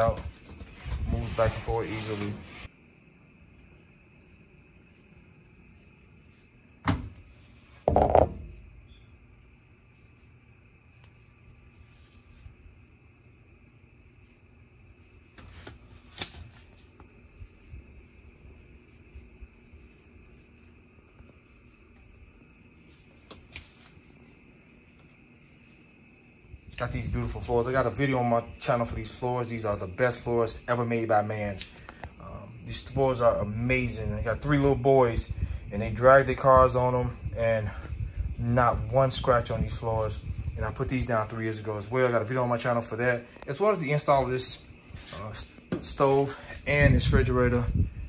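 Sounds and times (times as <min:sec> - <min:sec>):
knocks and thumps: 0:07.8 - 0:08.6, 0:45.7 - 0:46.0.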